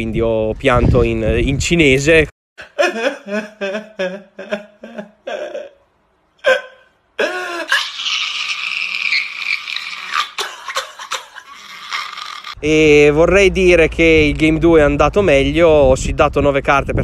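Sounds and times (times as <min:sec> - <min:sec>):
man sobbing: 0:02.6 - 0:12.5
man wailing: 0:02.8 - 0:05.8.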